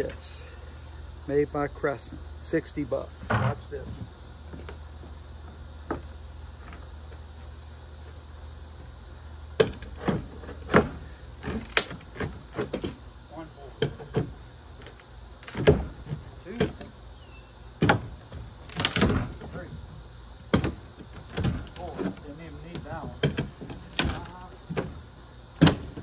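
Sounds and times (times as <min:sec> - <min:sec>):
crickets chirping: 0:00.0 - 0:26.0
deck boards knocking and cracking: 0:09.6 - 0:13.0, 0:13.8 - 0:16.9, 0:17.8 - 0:19.8, 0:20.5 - 0:25.0, 0:25.6 - 0:26.0.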